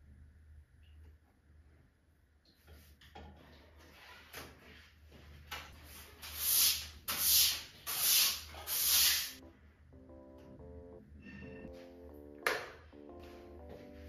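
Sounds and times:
short hissing bursts: 6.2 - 9.4.

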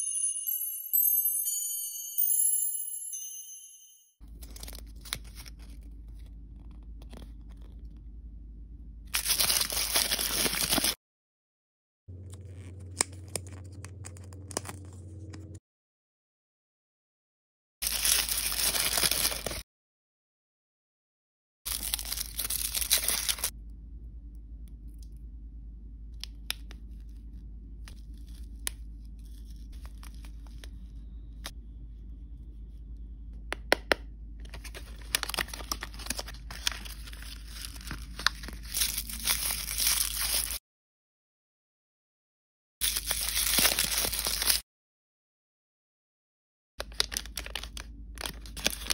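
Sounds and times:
paper cards handled: 4.2 - 7.9, 9.2 - 11.0, 12.2 - 15.6, 21.7 - 23.5, 26.5 - 31.5, 33.7 - 40.6, 42.9 - 44.6, 46.8 - 48.9
plastic wrapper crinkling: 9.2 - 11.0, 17.8 - 19.6, 21.7 - 23.5, 27.9 - 31.5, 34.4 - 40.6, 42.8 - 44.6, 46.8 - 48.9.

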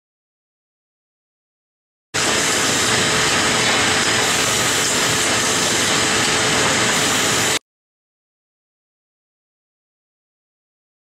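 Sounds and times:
loud steady machine noise: 2.2 - 7.6.

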